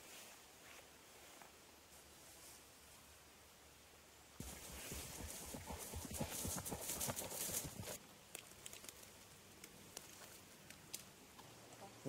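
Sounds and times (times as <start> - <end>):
wind: 0.0 - 12.0
horse hoofbeats on grass: 4.4 - 8.0.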